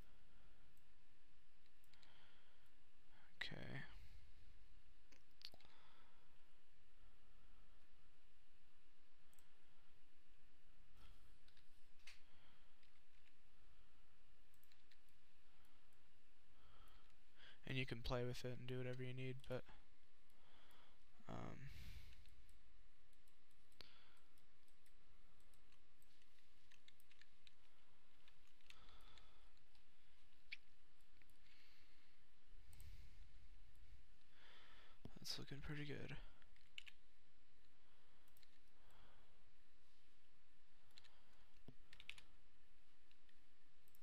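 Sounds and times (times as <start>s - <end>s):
computer mouse clicks: 1.6s - 2.2s, 14.4s - 16.0s, 22.1s - 31.5s, 36.4s - 38.8s, 40.8s - 44.0s.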